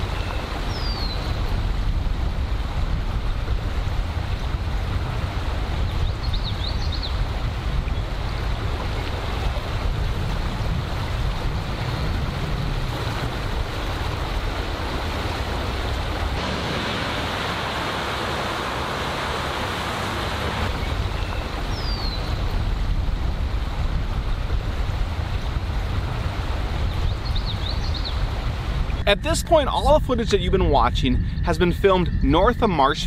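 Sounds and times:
wind buffeting microphone: 0.0s - 33.0s
truck tyres spraying water: 14.0s - 22.7s.

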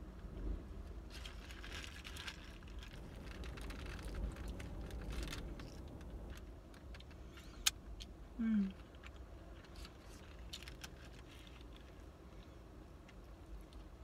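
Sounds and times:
low wind rumble: 0.0s - 7.0s
foil crinkling and clicking: 1.1s - 7.0s, 9.0s - 11.9s.

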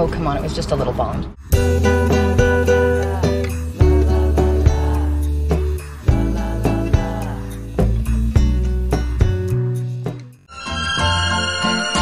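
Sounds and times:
steady bass line: 1.5s - 10.2s
plucked guitar notes: 1.6s - 12.0s.

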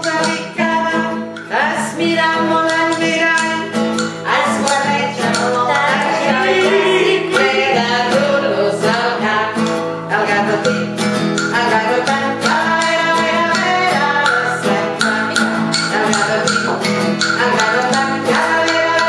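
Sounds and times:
acoustic guitar: 0.0s - 19.0s
person singing: 0.0s - 19.0s.

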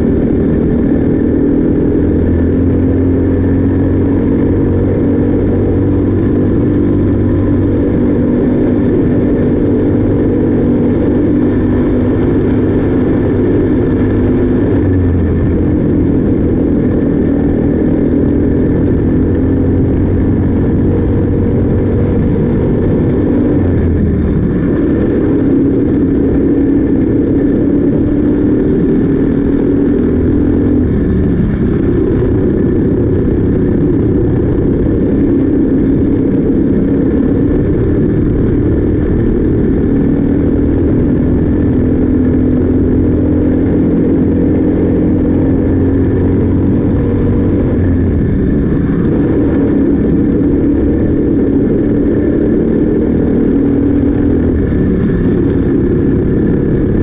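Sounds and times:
kart engine racing: 0.0s - 57.0s.

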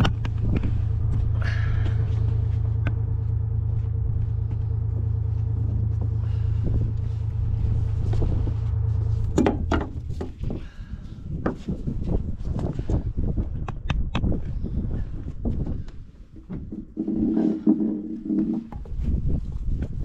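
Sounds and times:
gear knocking and clattering: 0.0s - 10.8s
boat motor droning: 0.0s - 12.2s, 16.4s - 19.7s.

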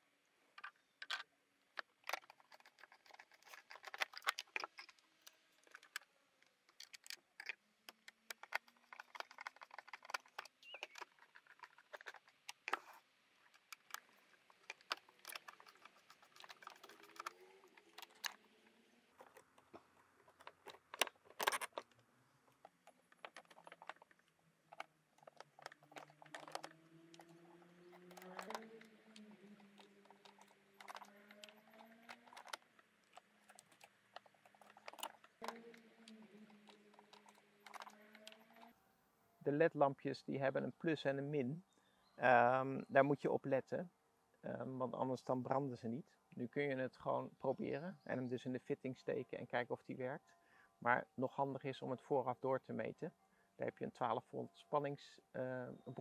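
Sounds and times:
small parts clicking and tapping: 0.6s - 38.7s.

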